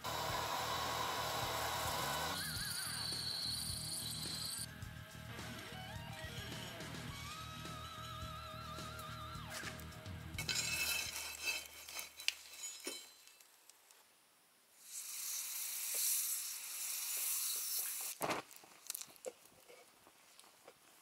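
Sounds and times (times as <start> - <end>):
hot steel sizzling in oil: 0.0 - 4.7, 10.4 - 13.3, 14.8 - 18.2
oil crackling: 17.9 - 19.5.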